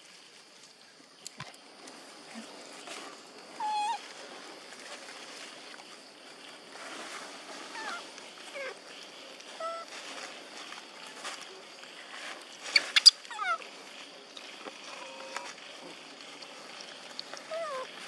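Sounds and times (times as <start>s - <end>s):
macaques squeaky calls: 3.6s - 4.0s, 9.5s - 9.9s, 12.7s - 13.6s, 17.5s - 17.9s.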